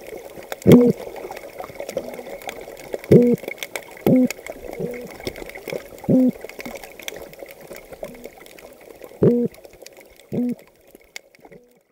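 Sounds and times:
crackling clicks: 0.0s - 11.9s
toadfish calls: 0.6s - 1.0s, 3.1s - 3.4s, 4.0s - 5.2s, 6.0s - 6.4s, 9.2s - 9.6s, 10.3s - 10.6s.

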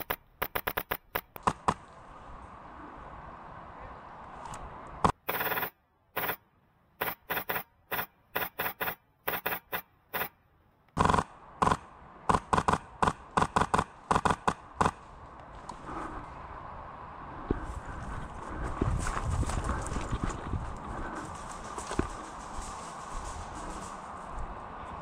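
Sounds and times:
airsoft gun firing: 0.0s - 1.8s, 5.1s - 6.4s, 7.0s - 10.3s, 11.0s - 15.0s.

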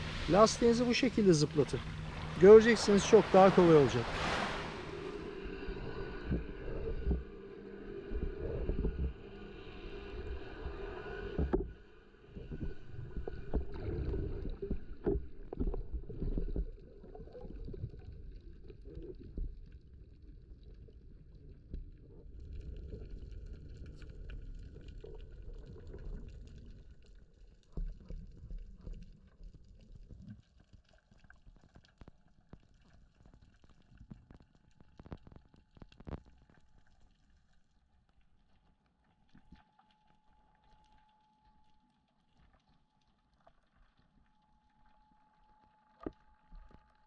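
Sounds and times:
muffled underwater rumble: 0.0s - 30.7s
underwater knocks and clicks: 11.3s - 11.8s.

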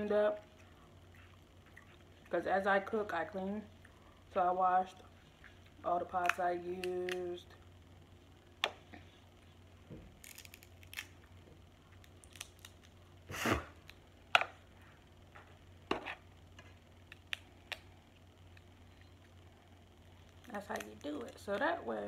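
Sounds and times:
crab shells snapping and clicking: 6.1s - 7.3s, 12.0s - 13.0s, 17.1s - 17.9s
shell crunch: 10.2s - 11.2s.

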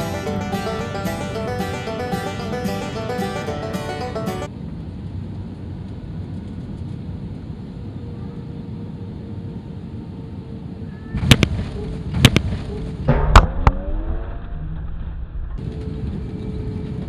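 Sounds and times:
loud thumps: 13.1s - 13.9s.

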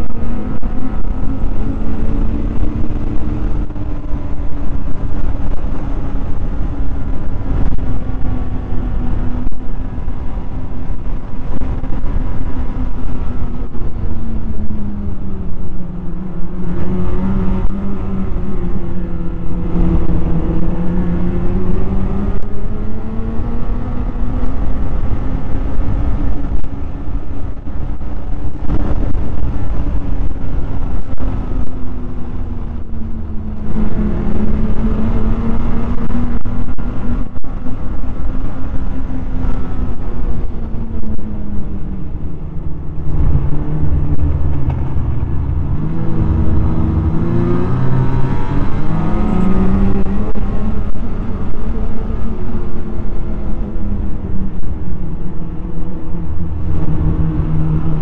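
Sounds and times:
low rumble: 0.0s - 58.0s
snowmobile engine revving: 42.9s - 53.6s.

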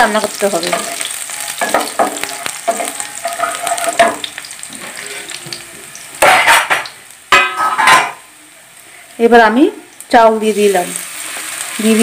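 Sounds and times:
food sizzling in hot fat: 0.0s - 12.0s
wooden spatula scraping pan: 4.7s - 5.4s.

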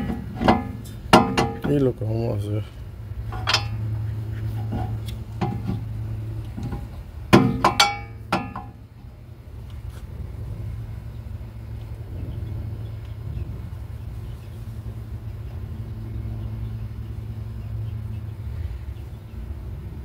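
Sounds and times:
brake pads clinking: 0.0s - 1.9s, 3.2s - 3.9s, 6.5s - 8.8s
steady low hum: 0.0s - 20.0s.

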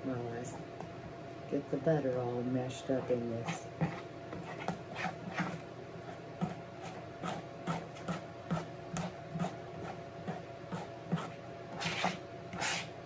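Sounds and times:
spoon scraping mixing bowl: 2.8s - 13.0s.

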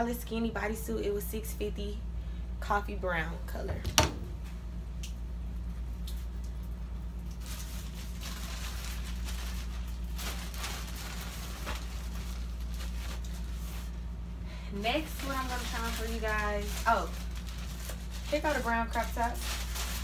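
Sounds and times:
steady low hum: 0.0s - 20.0s
clothes and plastic rustling: 5.9s - 20.0s.

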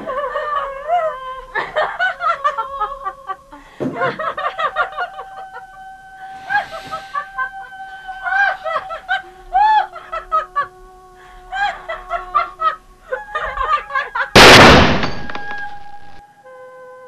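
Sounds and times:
loud handgun shot: 14.4s - 16.2s.

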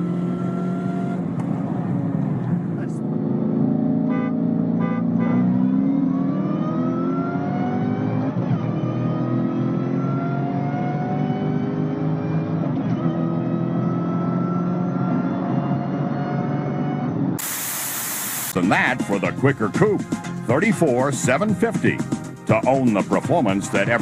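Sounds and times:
car engine at full throttle: 0.0s - 18.6s.

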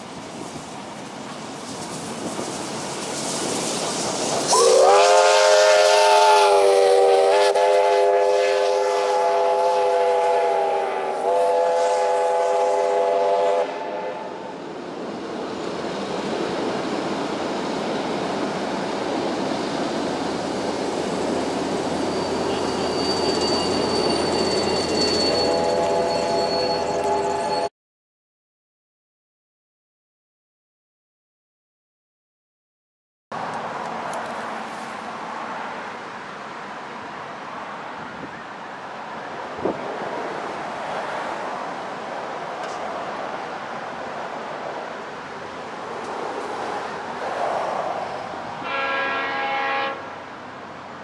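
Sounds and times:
steam locomotive whistle: 4.5s - 14.6s, 22.1s - 27.7s, 48.6s - 50.1s.

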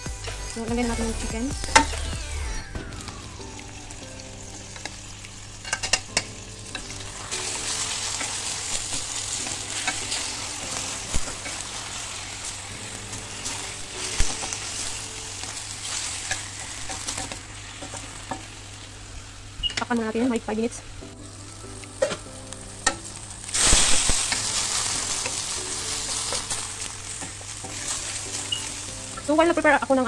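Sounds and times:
chicken sizzling in a pan: 0.0s - 30.0s
wooden spatula scraping a pan: 6.8s - 18.4s, 23.5s - 29.6s.

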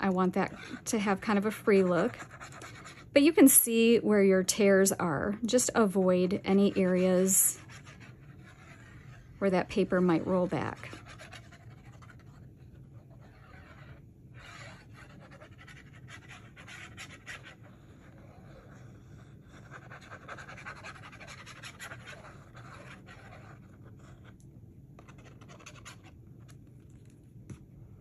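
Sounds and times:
glue applicator scratching paper: 6.2s - 17.8s, 19.6s - 24.3s.

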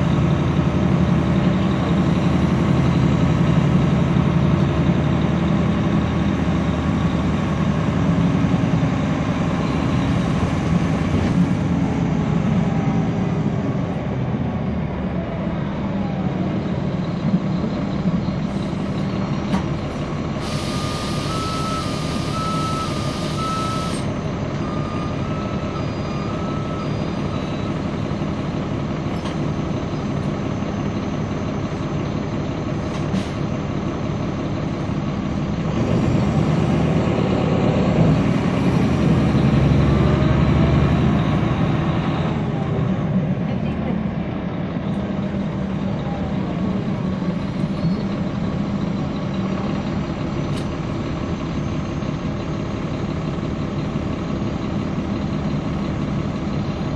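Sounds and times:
bus engine revving: 0.0s - 56.9s
repeated beep: 21.3s - 24.0s.

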